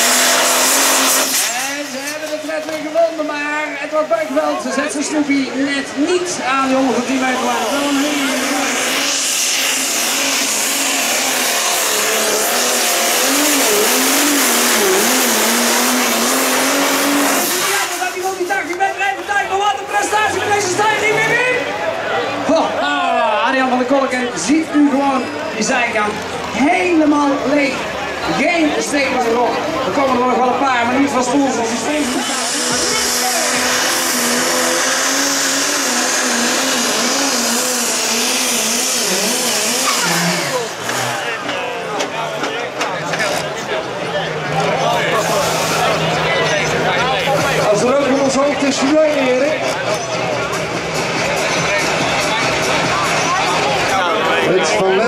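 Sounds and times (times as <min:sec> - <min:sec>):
tractor diesel engine at full power: 0:00.0 - 0:55.0.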